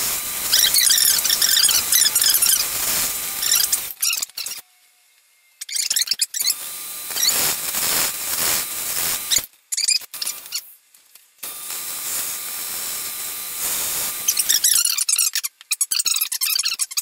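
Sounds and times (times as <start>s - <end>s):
lathe tool cutting wood: 0.0s - 4.0s, 6.5s - 9.5s, 11.4s - 14.7s
high squeaks: 0.5s - 4.7s, 5.6s - 7.6s, 14.3s - 17.0s.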